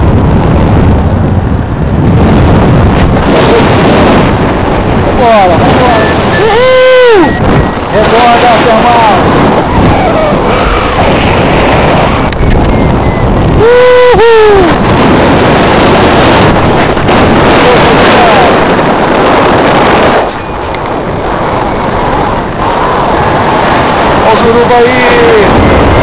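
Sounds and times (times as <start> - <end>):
wind buffeting microphone: 0.0 - 26.0
person whooping: 6.4 - 7.4, 13.5 - 14.8.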